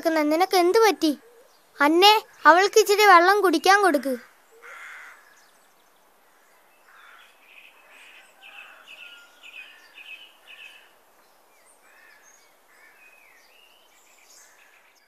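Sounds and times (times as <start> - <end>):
outdoor hiss: 0.0 - 15.0
bird chirping: 0.6 - 15.0.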